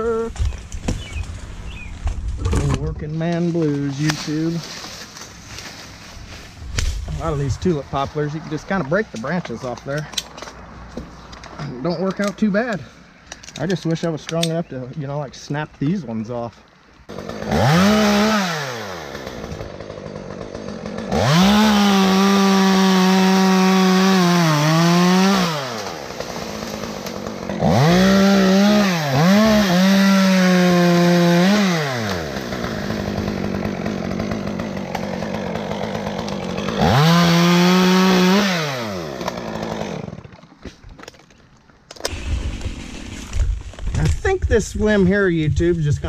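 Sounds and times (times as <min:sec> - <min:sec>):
chainsaw revving and cutting wood: 0:17.0 - 0:40.6, 0:42.0 - 0:44.1.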